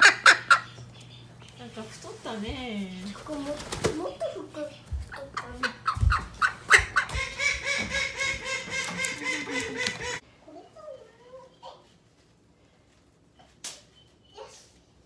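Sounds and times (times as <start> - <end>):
duck quacking: 5.6 - 10.2.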